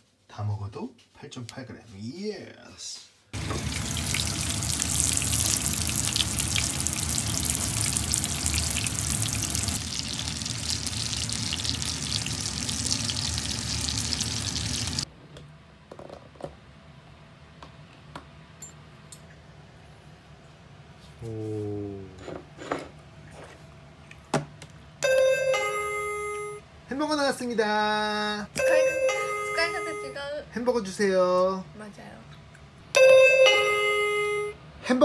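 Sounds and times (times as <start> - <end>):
patties sizzling in a frying pan: 3.4 - 15.1.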